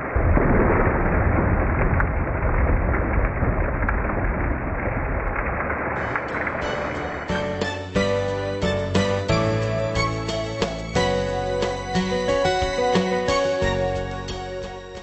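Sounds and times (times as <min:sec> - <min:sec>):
deep rumbling thunder: 0:00.0 - 0:07.4
sharp crackles: 0:00.0 - 0:08.0
steady rain: 0:00.0 - 0:15.0
music: 0:06.0 - 0:15.0.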